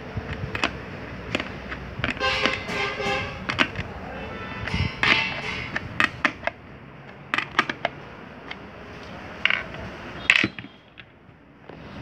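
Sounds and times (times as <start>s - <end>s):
plastic and metal clicks and taps: 0.3s - 2.6s, 5.0s - 8.6s.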